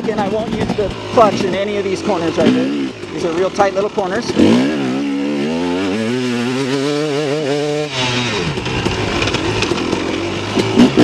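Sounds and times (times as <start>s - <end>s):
dirt bike engine running: 0.0s - 11.0s.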